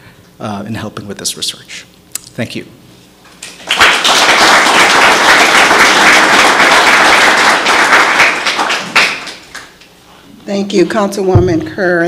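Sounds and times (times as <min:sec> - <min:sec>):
audience applauding: 0:03.4 - 0:09.8.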